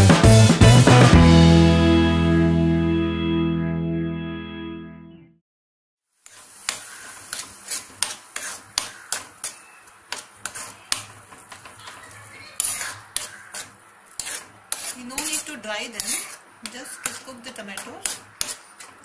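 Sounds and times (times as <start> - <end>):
metal spoon scraping a pan: 6.3 - 19.0.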